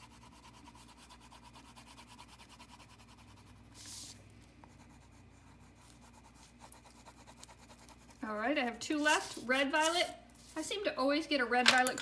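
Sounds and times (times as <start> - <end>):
crayon scribbling on paper: 0.0 - 8.3.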